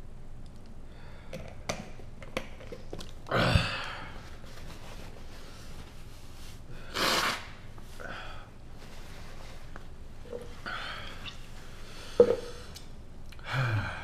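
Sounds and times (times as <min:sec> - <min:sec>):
man blowing his nose: 0:06.8 - 0:07.7.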